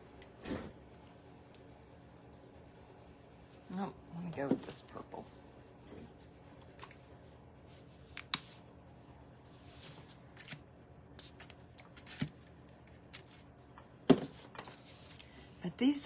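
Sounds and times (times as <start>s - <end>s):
soft brushing rustle: 1.7s - 4.0s, 4.6s - 8.1s, 9.2s - 10.2s.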